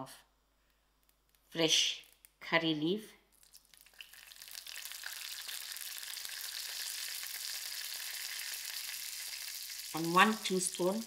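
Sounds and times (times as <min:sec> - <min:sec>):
leaves frying in hot oil: 0:03.4 - 0:11.0.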